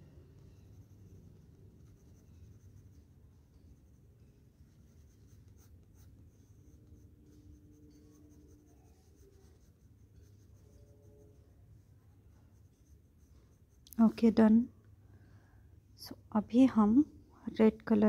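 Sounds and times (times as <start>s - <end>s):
pencil scratching on paper: 0.4s - 14.1s.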